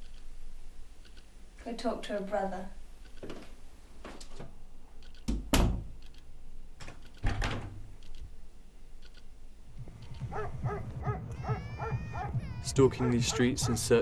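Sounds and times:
door opening and shutting: 5.3 - 6.0, 6.8 - 7.9.

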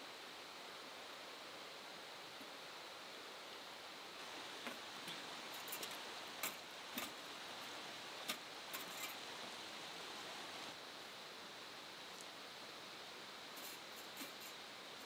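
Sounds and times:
steady hiss: 0.0 - 15.0.

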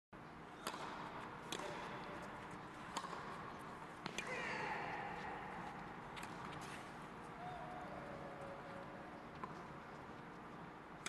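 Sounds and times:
racket hitting tennis ball: 0.6 - 3.4.

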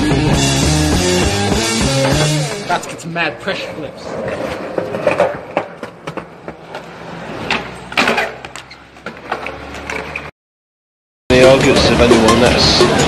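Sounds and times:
skateboard wheels rolling on concrete: 0.0 - 10.3
skateboard clattering on ground: 4.2 - 6.8.

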